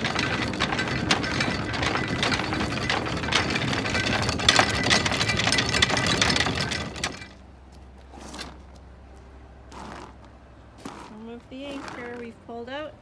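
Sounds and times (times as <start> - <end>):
anchor chain rattling: 0.0 - 7.4.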